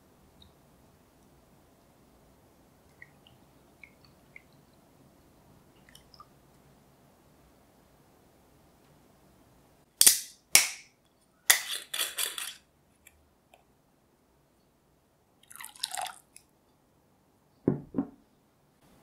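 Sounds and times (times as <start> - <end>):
screw cap scraping off bottle: 11.5 - 12.6
liquid trickling being poured: 15.4 - 16.3.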